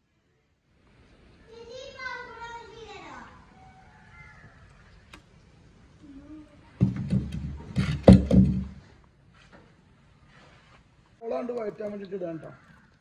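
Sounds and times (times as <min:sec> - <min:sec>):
knocks and clattering thumps: 0:06.8 - 0:08.9.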